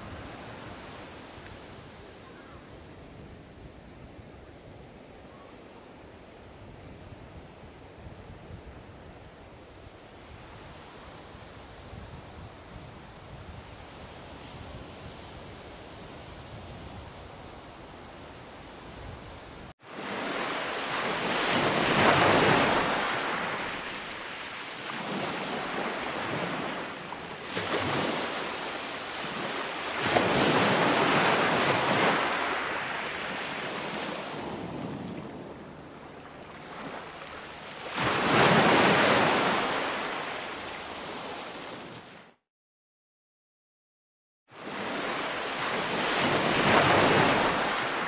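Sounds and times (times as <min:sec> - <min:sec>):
small waves breaking on shore: 0:19.8 - 0:42.4, 0:44.5 - 0:48.0.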